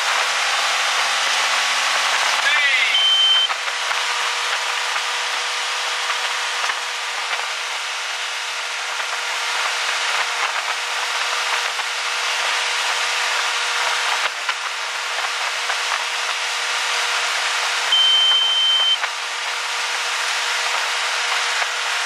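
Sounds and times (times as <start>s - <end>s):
boat engine humming: 1.5s - 22.0s.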